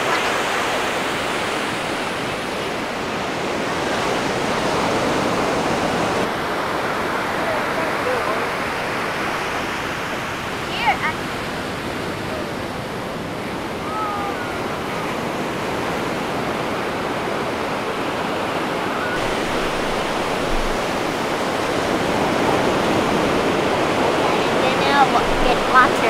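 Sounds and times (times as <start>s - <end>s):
ocean surf washing on beach: 0.0s - 26.0s
faint children's voices: 13.8s - 14.7s.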